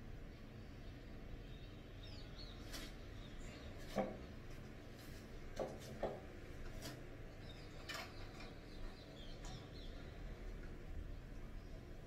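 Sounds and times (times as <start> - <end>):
low room noise: 0.0 - 12.0.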